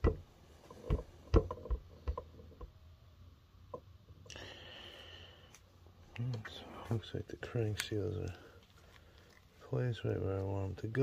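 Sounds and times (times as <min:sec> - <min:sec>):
metal knocks and clicks: 0:00.0 - 0:02.7.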